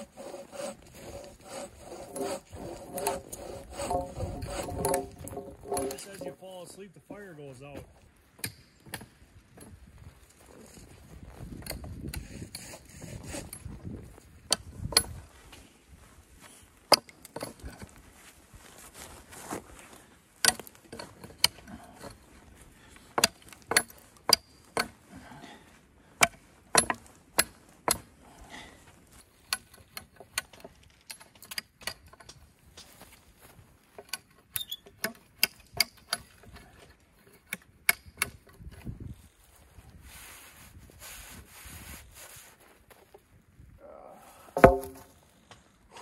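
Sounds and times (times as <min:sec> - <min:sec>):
hatchet chopping wood: 0:00.0 - 0:06.3, 0:08.4 - 0:09.1, 0:16.9 - 0:17.5, 0:20.4 - 0:21.6, 0:23.2 - 0:25.0, 0:26.2 - 0:28.1, 0:34.9 - 0:36.4, 0:37.5 - 0:38.6, 0:44.6 - 0:45.2.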